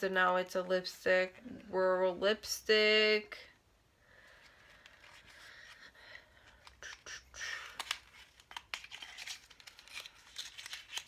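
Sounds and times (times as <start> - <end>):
packaging crinkling: 7.6 - 11.0.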